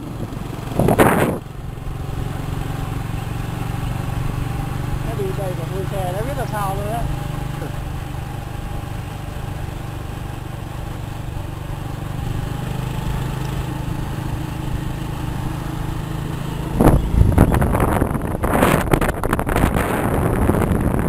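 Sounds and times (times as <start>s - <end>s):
wind buffeting microphone: 0.0s - 8.2s, 16.6s - 21.0s
vehicle engine humming: 0.0s - 21.0s.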